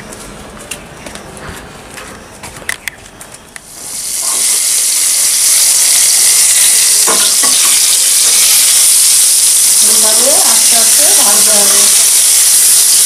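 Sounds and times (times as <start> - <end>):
vegetables sizzling in oil: 3.7 - 13.0.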